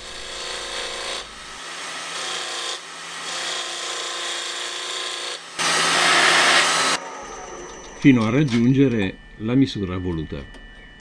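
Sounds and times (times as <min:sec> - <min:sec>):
gouge cutting wood on lathe: 0:00.0 - 0:07.0.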